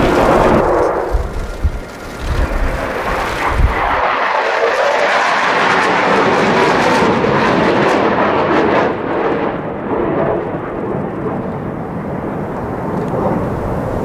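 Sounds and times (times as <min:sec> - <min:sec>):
jet engine noise: 0:00.0 - 0:14.0.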